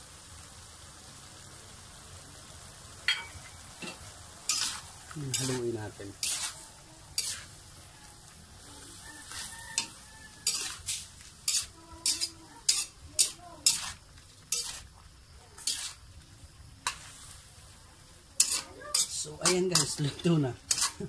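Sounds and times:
food sizzling in a wok: 0.0 - 21.0
spatula scraping a metal wok: 3.8 - 7.8, 8.8 - 15.0, 15.6 - 16.0, 16.8 - 17.6, 18.4 - 21.0.

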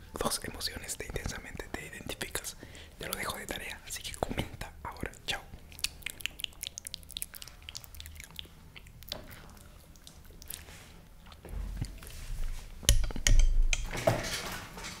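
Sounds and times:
chewing: 5.0 - 12.7
mouth clicks: 5.7 - 9.2.

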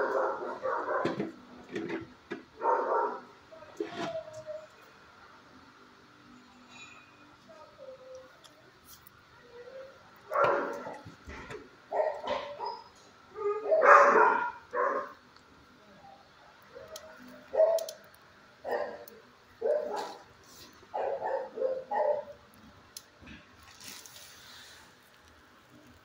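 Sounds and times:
dog barking: 0.0 - 1.2, 2.6 - 3.3, 10.3 - 11.0, 11.9 - 15.2, 17.5 - 18.0, 18.6 - 20.3, 20.9 - 22.3.

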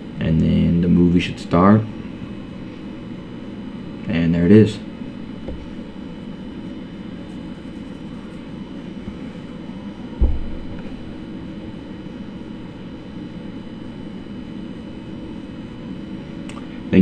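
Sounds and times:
low background hum: 0.0 - 17.0
dull thump: 10.2 - 11.4.

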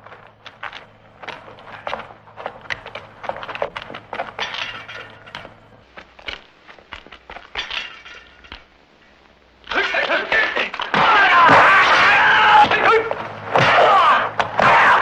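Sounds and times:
metal clinking and clattering: 2.6 - 8.8.

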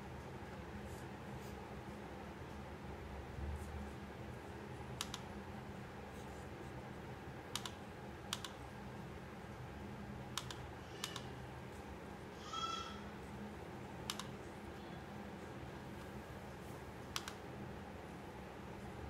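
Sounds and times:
low steady hum: 0.0 - 19.0
computer mouse clicking: 5.0 - 5.3, 7.5 - 8.6, 10.3 - 11.3, 14.0 - 14.4, 17.1 - 17.4.

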